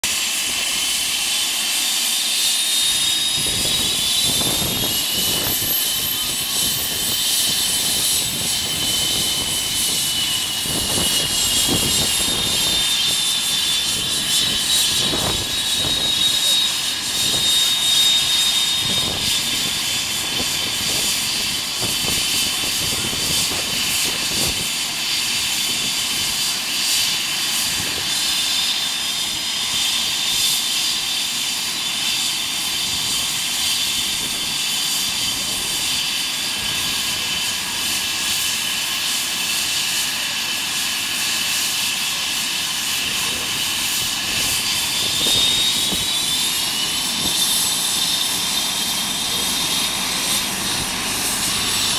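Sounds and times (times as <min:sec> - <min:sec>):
helicopter rotor rumble: 0:00.0 - 0:51.9
helicopter turbine whine: 0:00.0 - 0:51.9.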